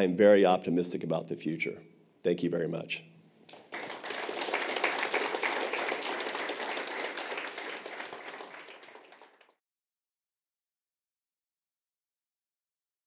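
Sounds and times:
audience applauding: 0:03.5 - 0:09.6.

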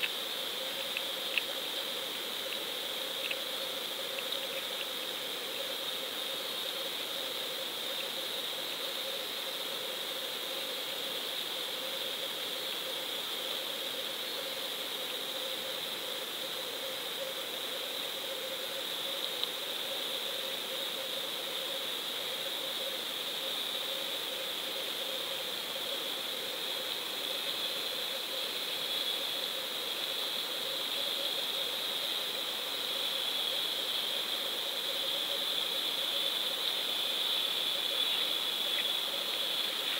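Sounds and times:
faint click: 0:00.8 - 0:01.6, 0:19.4 - 0:19.6.

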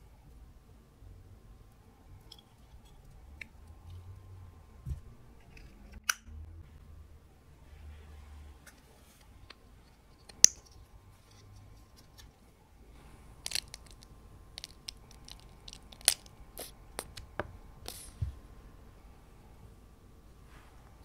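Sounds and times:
paint squeezing clicks and crackles: 0:13.4 - 0:18.2
plastic cap snapping open: 0:14.6 - 0:18.0.

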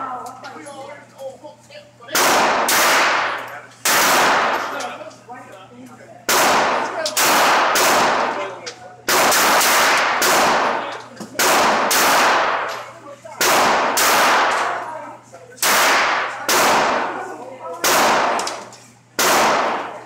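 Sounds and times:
pistol shots echoing indoors: 0:02.1 - 0:04.8, 0:06.3 - 0:08.4, 0:09.0 - 0:12.8, 0:13.4 - 0:14.9, 0:15.6 - 0:17.2, 0:17.8 - 0:20.0.

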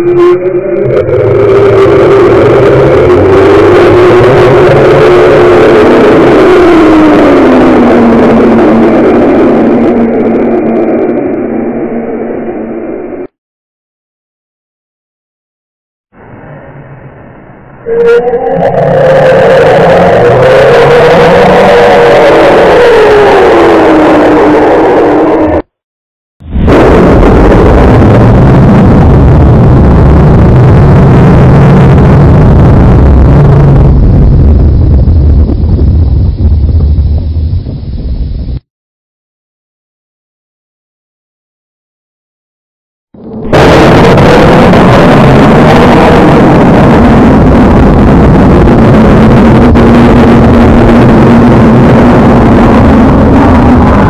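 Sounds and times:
distorted monster rumbling drone: 0:00.0 - 0:13.3, 0:16.2 - 0:25.7, 0:26.4 - 0:38.6, 0:43.2 - 0:54.0
faint held tone: 0:16.4 - 0:18.8.

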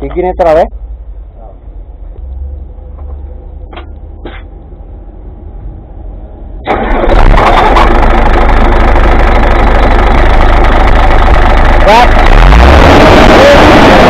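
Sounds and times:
diesel engine idling: 0:00.3 - 0:14.0
starter cranking engine: 0:06.6 - 0:14.0.

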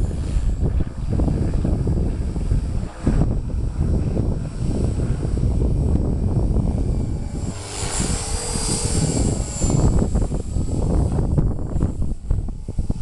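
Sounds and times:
rc helicopter rotor whine: 0:00.0 - 0:13.0
wind buffeting microphone: 0:00.0 - 0:13.0.

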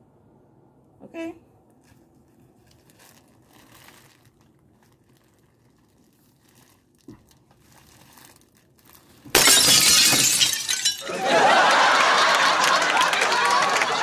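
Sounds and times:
fabric and packaging rustling: 0:01.6 - 0:09.4.

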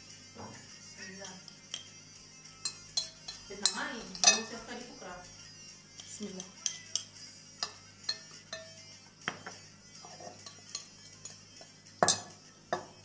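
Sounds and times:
spoon clinking against glass: 0:01.2 - 0:02.0, 0:02.6 - 0:04.6, 0:06.3 - 0:13.0
glass knocking: 0:08.1 - 0:10.8, 0:12.0 - 0:13.0.

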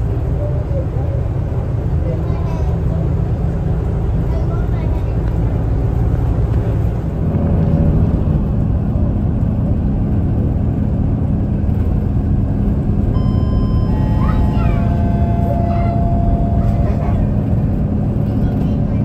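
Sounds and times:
bus engine and road rumble: 0:00.0 - 0:19.0
faint high whine: 0:13.2 - 0:17.7.

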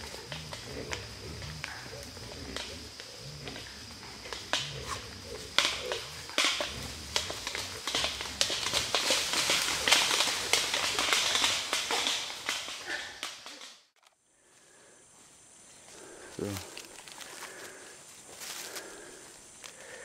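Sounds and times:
low grunts: 0:00.0 - 0:11.3
dry leaves crackling underfoot: 0:16.4 - 0:19.8.

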